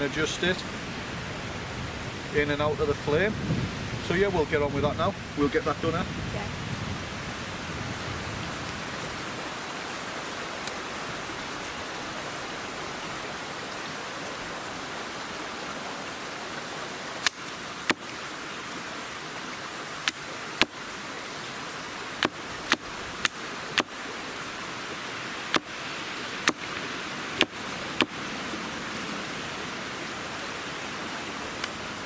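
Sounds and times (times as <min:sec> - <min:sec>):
hatchet chopping wood: 0:20.0 - 0:20.8, 0:22.2 - 0:23.9, 0:25.5 - 0:25.7, 0:26.4 - 0:26.6, 0:27.4 - 0:28.2.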